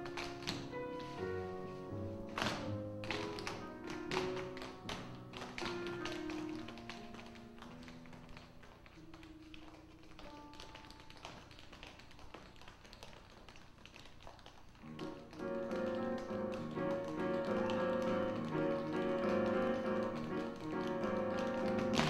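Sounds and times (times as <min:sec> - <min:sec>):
jazz piano notes: 0:00.0 - 0:13.4, 0:14.6 - 0:22.0
tap shoes clicking on stage: 0:00.0 - 0:22.0
piano bass and conga trio: 0:14.9 - 0:22.0.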